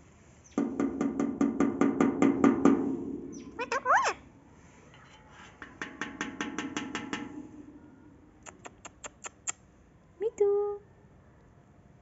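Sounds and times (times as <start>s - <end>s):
parakeet sharp clicks: 8.5s - 9.6s.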